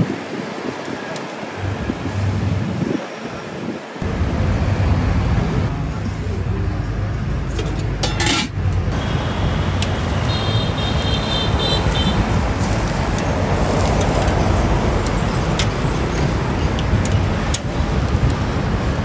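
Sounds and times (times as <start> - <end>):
street traffic rumble: 0.0 - 19.0.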